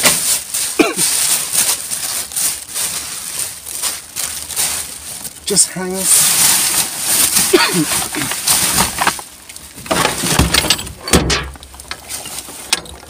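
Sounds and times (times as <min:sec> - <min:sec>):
plastic bags rustling: 0:00.0 - 0:13.0
goods clinking and knocking: 0:09.8 - 0:13.0.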